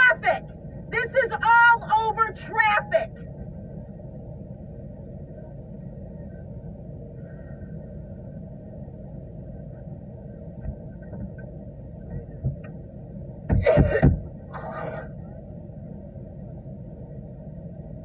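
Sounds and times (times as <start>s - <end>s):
woman coughing: 13.5s - 14.2s.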